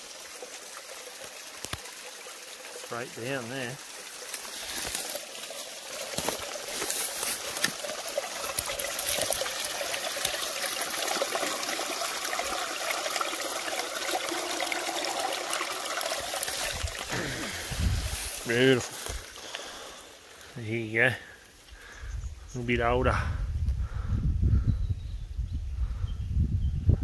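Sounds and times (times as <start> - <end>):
creek water trickling: 0.0 - 22.8
water pouring into a bag: 0.9 - 20.1.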